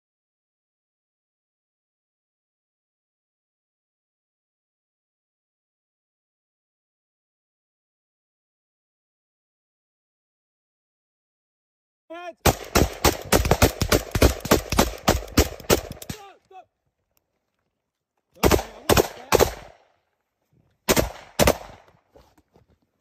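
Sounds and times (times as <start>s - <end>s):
man shouting: 12.1s - 12.5s, 16.1s - 16.7s
small-arms gunfire: 12.4s - 16.3s, 18.4s - 19.9s, 20.9s - 21.9s.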